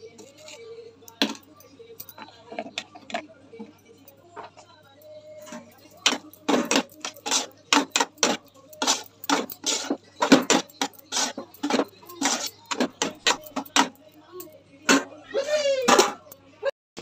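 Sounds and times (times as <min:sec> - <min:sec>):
metal spatula scraping metal pot: 0:05.5 - 0:14.0.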